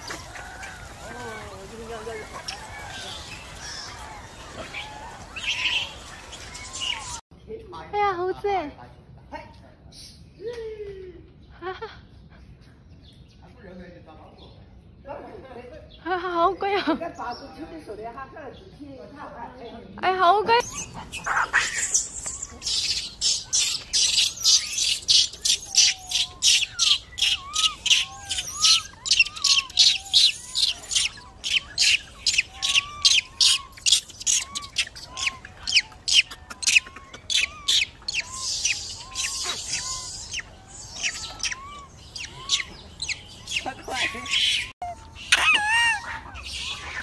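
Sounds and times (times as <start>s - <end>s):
sharp high bird chirps: 20.6s - 47.0s.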